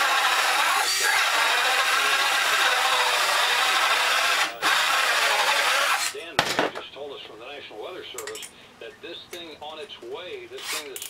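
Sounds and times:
power tool working wood: 0.0s - 6.1s.

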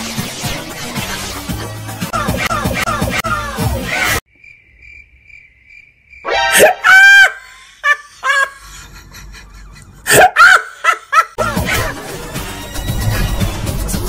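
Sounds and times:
person yelping and crying: 2.2s - 4.2s, 6.3s - 8.6s, 10.1s - 11.9s.

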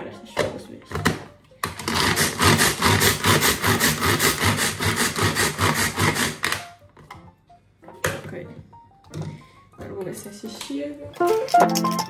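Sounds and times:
food chopper chopping onions: 1.7s - 6.6s.

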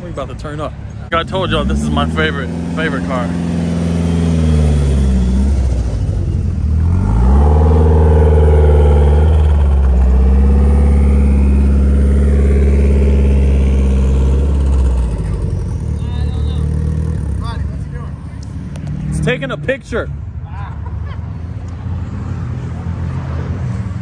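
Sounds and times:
car engine and exhaust: 0.0s - 24.0s.

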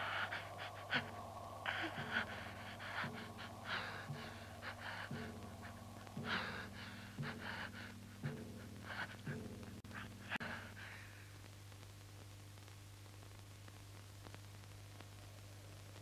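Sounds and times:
person gasping for breath: 0.0s - 11.3s
steady low hum: 0.0s - 16.0s.

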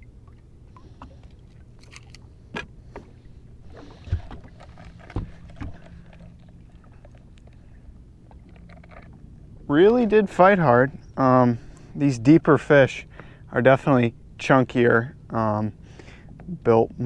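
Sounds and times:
low hum: 0.0s - 17.0s
knocks and clunks on a boat: 2.5s - 10.2s.

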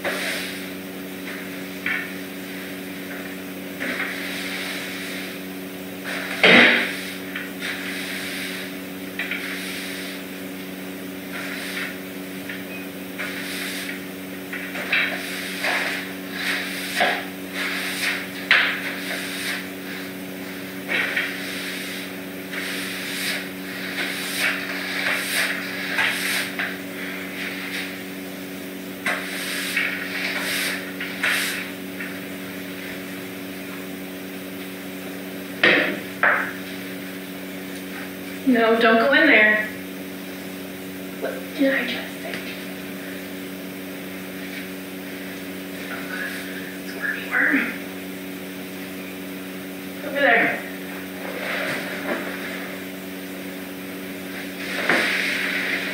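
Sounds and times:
broom sweeping a hard floor: 0.0s - 10.6s, 11.2s - 33.1s, 44.4s - 46.8s, 50.6s - 55.9s
steady low hum: 0.0s - 55.9s
broom and dustpan knocks: 6.3s - 7.5s, 18.4s - 19.2s, 35.6s - 36.6s, 54.7s - 55.3s.

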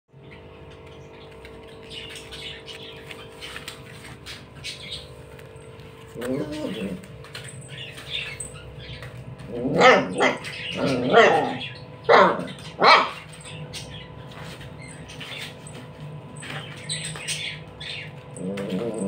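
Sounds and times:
puppy barking: 9.5s - 13.6s.

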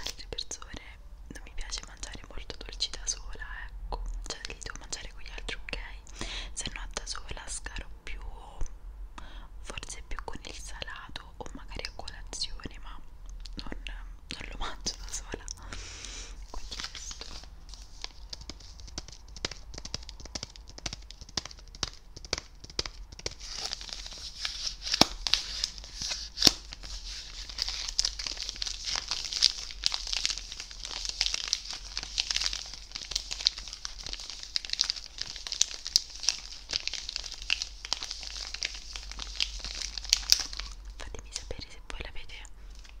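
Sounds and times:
plastic wrapper crinkling: 0.0s - 0.6s, 16.2s - 41.7s.

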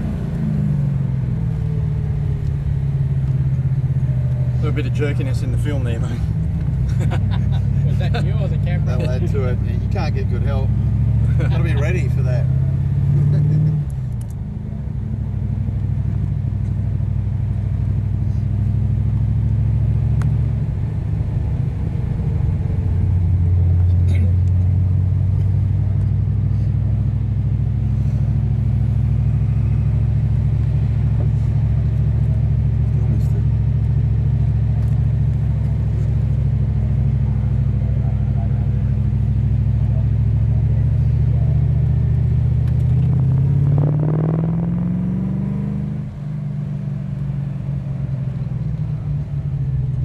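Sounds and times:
car engine droning from inside cabin: 0.0s - 50.0s.

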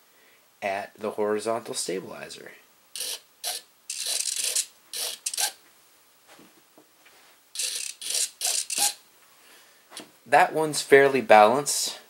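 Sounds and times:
servos buzzing: 3.0s - 5.6s, 7.6s - 9.0s.

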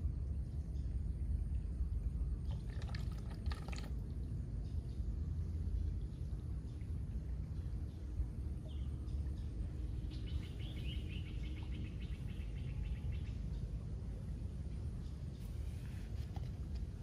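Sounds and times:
steady low rumble: 0.0s - 17.0s
bird chirping: 7.5s - 13.8s.

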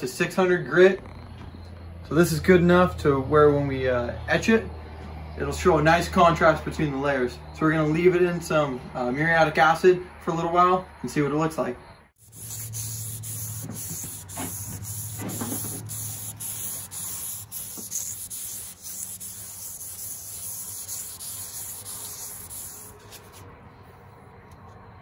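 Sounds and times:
sandpaper rubbing on steel blade: 12.2s - 23.4s.

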